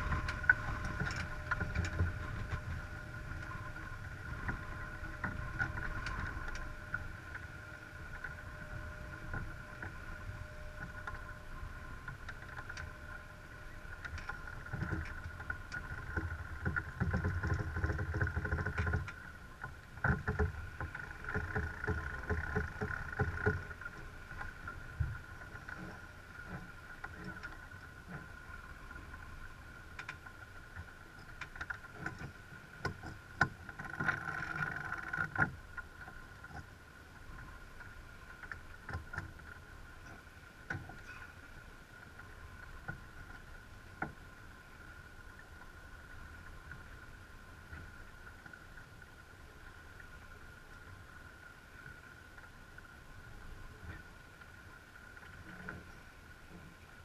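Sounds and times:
wind on microphone: 0.0s - 12.3s
water rushing past hull: 0.0s - 57.0s.

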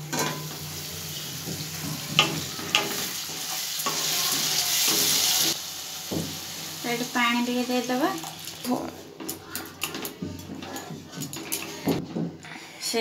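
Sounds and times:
food sizzling in a pan: 0.0s - 12.0s
spatula knocking against pan: 1.4s - 3.5s.

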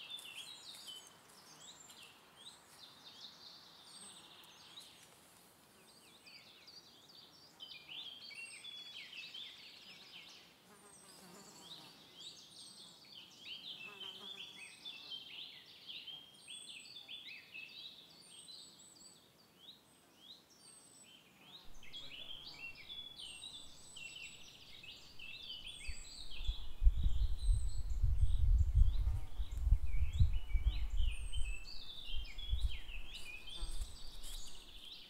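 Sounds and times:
birds singing: 5.8s - 35.0s.

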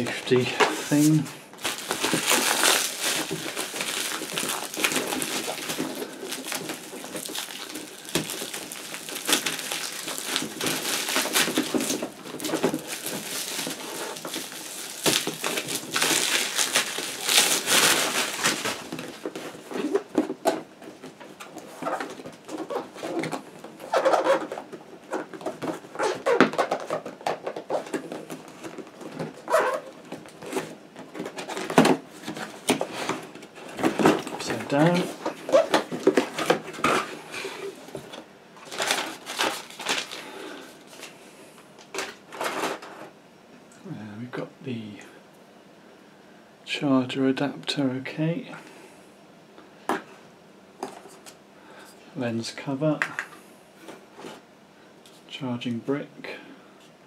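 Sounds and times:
plastic wrapping crinkling: 0.0s - 41.2s.

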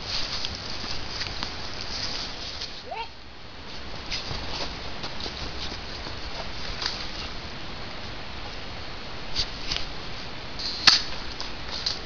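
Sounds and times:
rustling of dry leaves and brush: 0.0s - 12.0s.

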